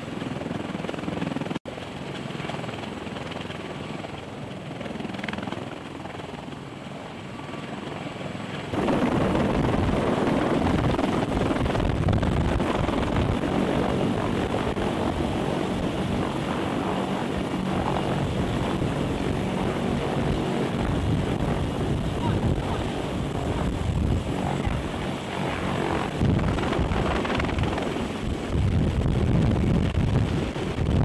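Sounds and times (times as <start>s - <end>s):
helicopter hovering overhead: 0.0s - 31.0s.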